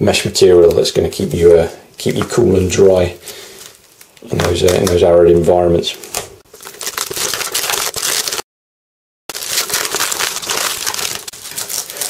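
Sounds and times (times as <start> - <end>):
nylon gear rustling: 9.3 - 12.0.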